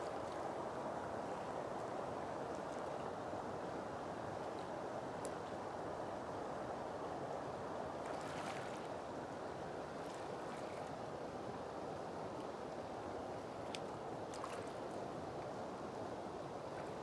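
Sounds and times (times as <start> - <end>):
legs wading through water: 7.9 - 11.2, 13.6 - 15.6.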